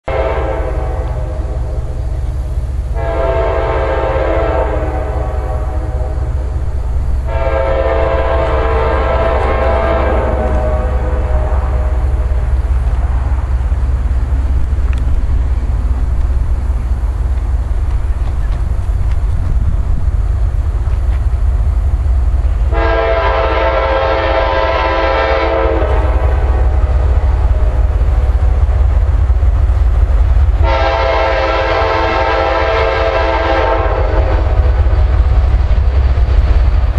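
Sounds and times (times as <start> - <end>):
locomotive air horn blasts: 0.0 - 1.9, 2.9 - 12.7, 22.6 - 28.9, 30.5 - 34.9
steady low rumble: 0.1 - 36.9
low rumble: 4.9 - 22.8.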